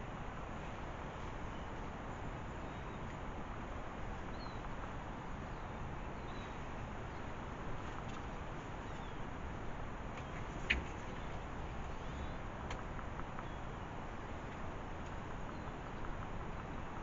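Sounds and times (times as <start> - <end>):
outdoor background hiss: 0.0 - 17.0
faint bird chirps: 4.3 - 4.6.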